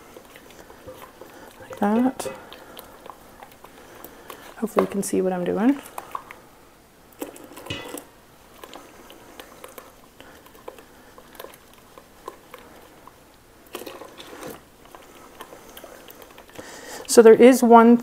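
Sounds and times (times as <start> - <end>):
spatula scraping metal bowl: 0.0 - 3.2, 13.8 - 14.7
milk pouring: 0.0 - 17.1.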